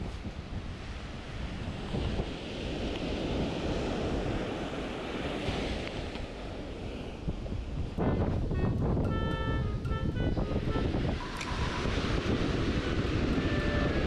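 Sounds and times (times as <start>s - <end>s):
wind buffeting microphone: 0.0s - 14.0s
surf breaking on beach: 11.0s - 14.0s.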